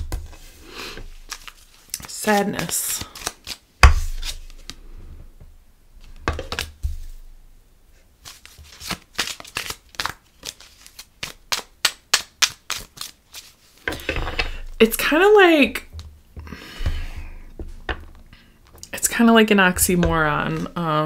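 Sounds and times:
cards slapping and tapping: 0:01.0 - 0:04.8, 0:08.2 - 0:14.6.

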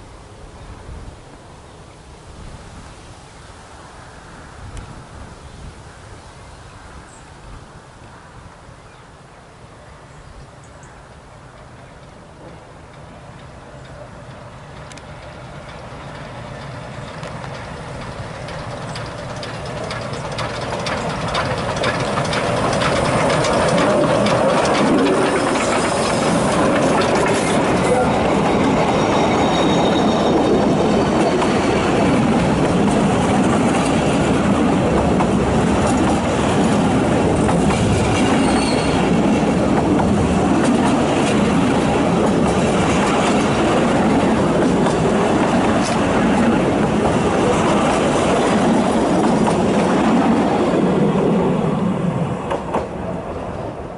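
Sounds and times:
steam train passing: 0:10.9 - 0:53.9
wheels clattering over rail joints: 0:12.4 - 0:51.4.

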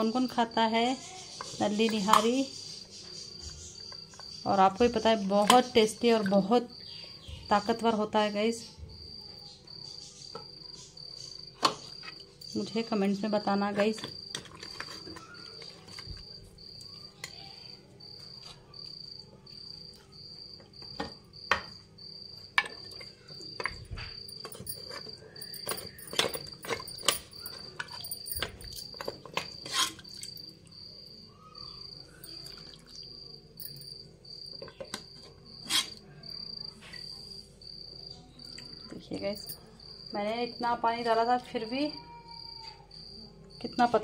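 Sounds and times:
cricket chirping: 0:00.0 - 0:44.0
ladle scraping metal pot: 0:25.7 - 0:30.2, 0:35.6 - 0:36.0.

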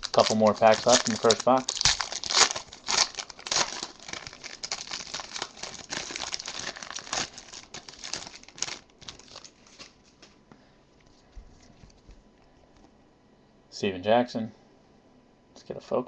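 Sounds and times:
foil wrapper crinkling and tearing: 0:00.0 - 0:10.1.

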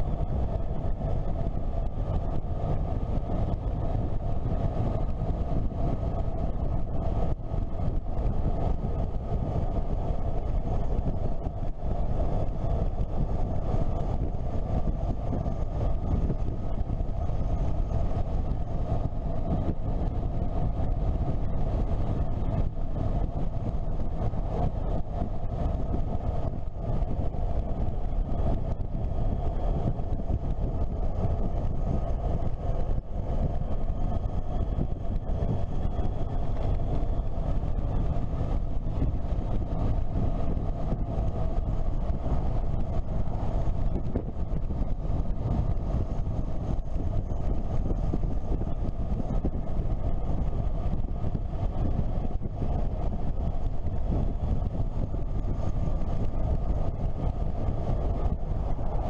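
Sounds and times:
motorcycle engine drone: 0:00.0 - 0:59.0
wind rush on microphone: 0:00.0 - 0:59.0.

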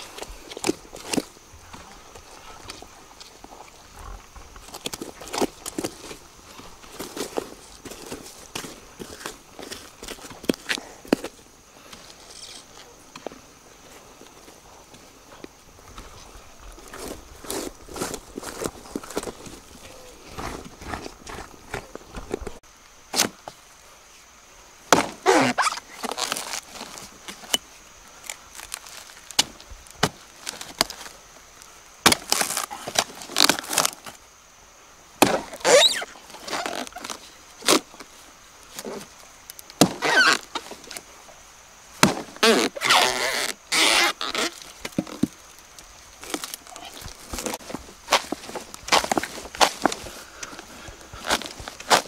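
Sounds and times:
machete chopping wood: 0:24.9 - 0:25.3, 0:35.2 - 0:35.6, 0:39.8 - 0:40.1, 0:42.0 - 0:42.4
wood crackling as torn apart: 0:28.2 - 0:31.1, 0:32.0 - 0:34.2.

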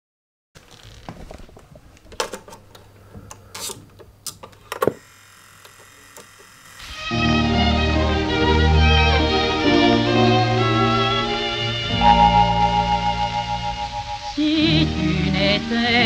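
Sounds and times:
low hum: 0:06.8 - 0:16.0
string music from record: 0:06.8 - 0:16.0.

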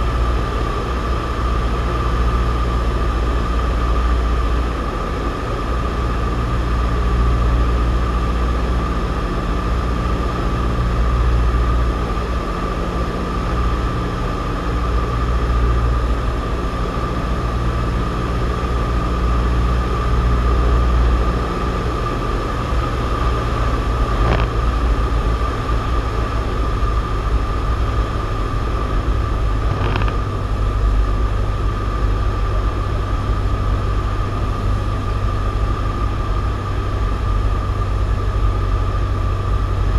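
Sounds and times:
propeller plane engine droning: 0:00.0 - 0:39.9
high whine: 0:18.3 - 0:39.9.

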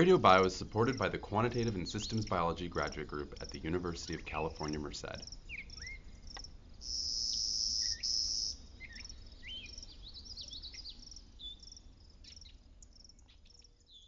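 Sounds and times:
crickets chirping: 0:00.0 - 0:14.0
insect trill: 0:00.0 - 0:14.0
short bird chirps: 0:06.8 - 0:11.7.

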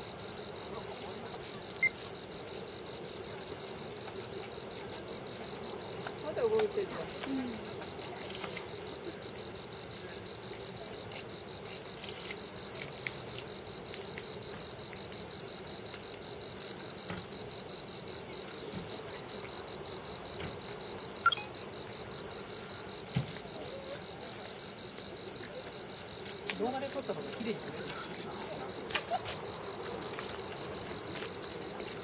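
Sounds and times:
insect fast trill: 0:00.0 - 0:32.0
high short insect chirp: 0:00.2 - 0:02.3, 0:07.3 - 0:09.2, 0:11.0 - 0:13.2, 0:18.3 - 0:28.3, 0:28.9 - 0:32.0.

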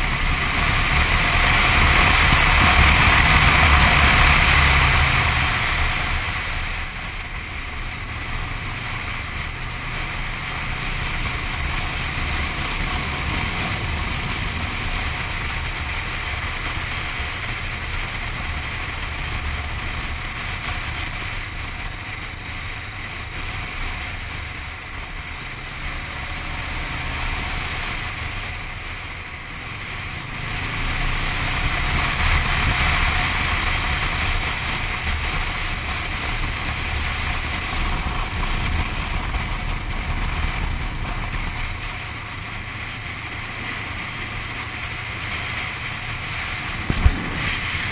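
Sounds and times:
motorcycle engine rumble: 0:00.0 - 0:47.9
wind rushing over microphone: 0:44.8 - 0:47.9.

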